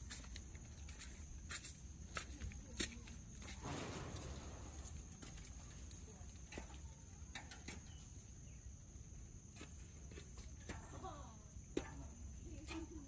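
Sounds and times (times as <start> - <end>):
footsteps on wet trail: 0.0 - 7.2.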